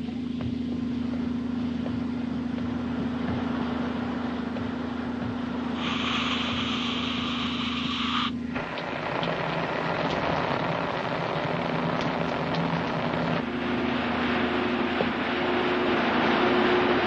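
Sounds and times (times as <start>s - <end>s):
low machine hum: 0.0s - 17.0s
loud hiss: 5.5s - 13.4s.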